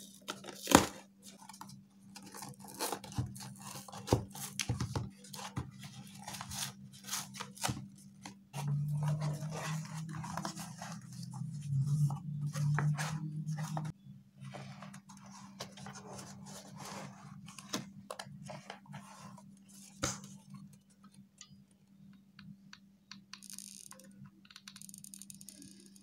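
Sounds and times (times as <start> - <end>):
cardboard scraping and crackling: 0.2 - 20.3
steady low drone: 8.6 - 14.6.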